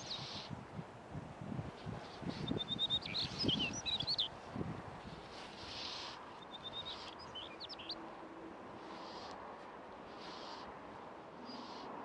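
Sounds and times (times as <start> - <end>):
songbird singing: 0.0 - 0.6, 1.7 - 8.2, 8.8 - 9.4, 11.4 - 12.0.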